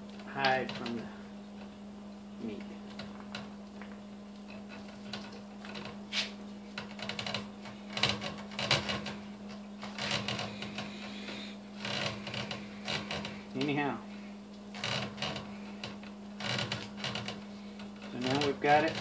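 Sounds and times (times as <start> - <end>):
steady low hum: 0.0 - 19.0
hide rustling and scraping: 2.9 - 9.2.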